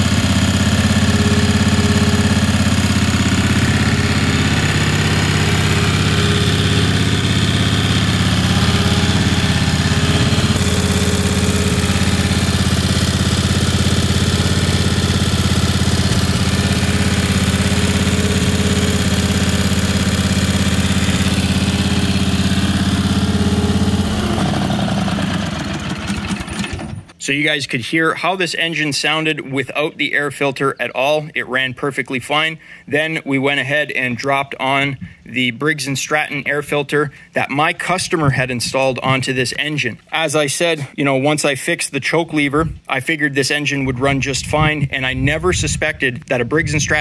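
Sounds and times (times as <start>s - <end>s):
engine running steadily: 0.0s - 27.2s.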